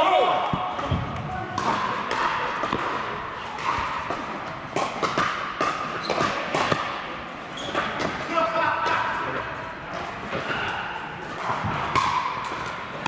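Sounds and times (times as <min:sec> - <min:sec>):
paddles hitting plastic balls: 0:00.4 - 0:07.0, 0:11.4 - 0:13.0.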